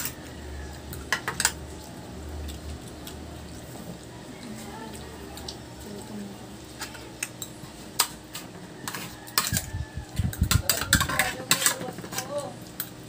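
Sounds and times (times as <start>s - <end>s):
cutlery clinking on metal trays: 0.0s - 0.2s, 0.9s - 1.6s, 6.8s - 13.0s.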